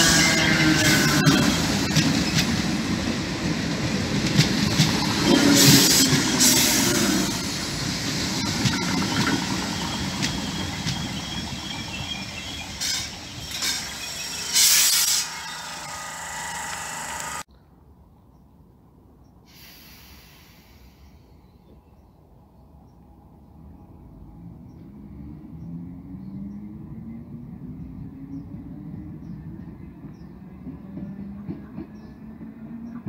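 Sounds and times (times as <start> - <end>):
train wheels rumbling on rails: 0.0 - 17.5, 24.2 - 33.0
wheels squealing: 4.6 - 17.5
faint electric motor whine: 15.2 - 17.5.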